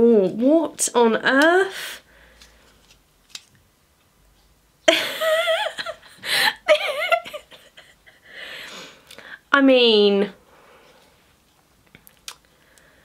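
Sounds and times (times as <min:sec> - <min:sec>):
woman giggling: 0:04.9 - 0:08.4.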